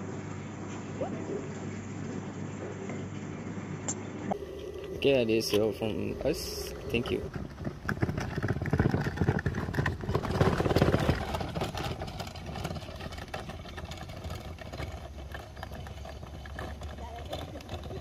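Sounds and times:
case wheels rattling on asphalt: 0:04.3 - 0:18.0.

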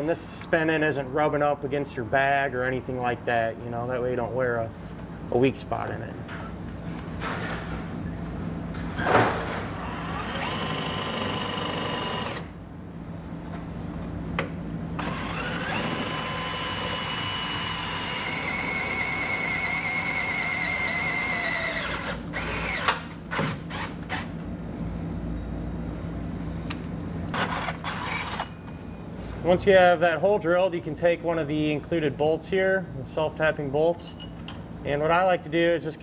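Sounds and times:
cordless drill boring steel: 0:10.0 - 0:12.5, 0:15.0 - 0:22.9, 0:27.4 - 0:28.5.

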